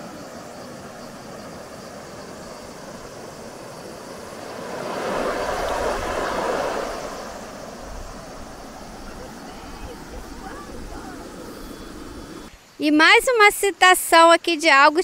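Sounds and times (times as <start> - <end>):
river rushing over rapids: 2.1 - 12.5.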